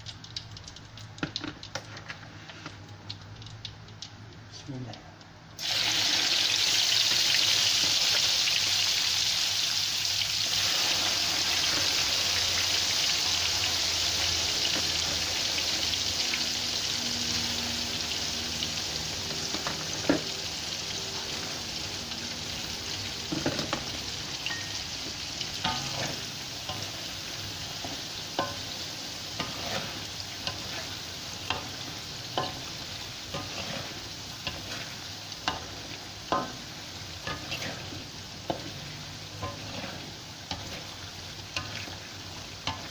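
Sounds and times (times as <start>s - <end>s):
peanuts sizzling in hot oil: 5.6s - 42.9s
spatula scraping and knocking on wok: 23.2s - 24.0s, 24.6s - 27.1s, 27.7s - 42.9s.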